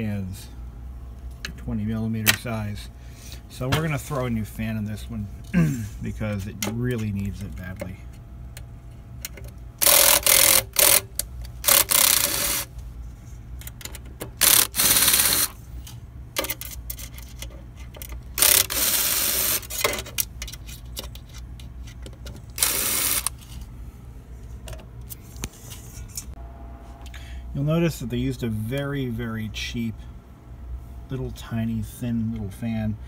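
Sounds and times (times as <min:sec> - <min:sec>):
screws and parts clicking: 0:09.2 - 0:12.7, 0:13.6 - 0:15.6, 0:16.4 - 0:23.4
cordless electric screwdriver running: 0:09.8 - 0:11.1, 0:11.7 - 0:12.7, 0:14.4 - 0:15.6, 0:18.4 - 0:19.8, 0:22.6 - 0:23.3.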